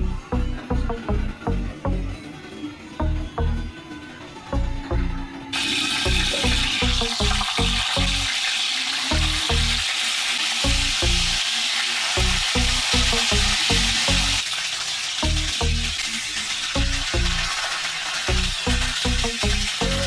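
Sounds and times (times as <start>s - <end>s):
fish frying in hot oil: 5.5s - 20.0s
background music bass beat: 6.0s - 8.4s, 10.6s - 11.5s, 12.2s - 14.6s, 16.8s - 17.6s, 18.3s - 20.0s.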